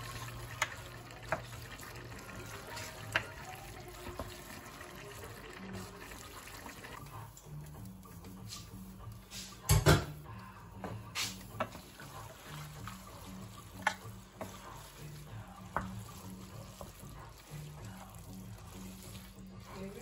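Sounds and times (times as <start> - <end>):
wooden spoon scraping pot: 0.0 - 7.0, 10.8 - 20.0
soft background music: 0.0 - 20.0.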